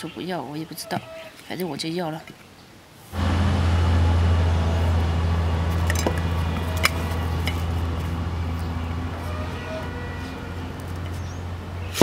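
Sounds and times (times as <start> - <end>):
low motor hum: 3.1 - 12.0.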